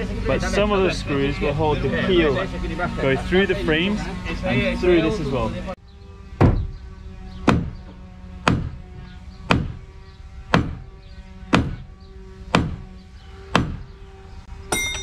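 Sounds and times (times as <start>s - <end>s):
hammer blows on wood: 7.4s - 8.8s, 9.4s - 9.8s, 10.5s - 11.9s, 12.5s - 12.9s, 13.5s - 13.9s.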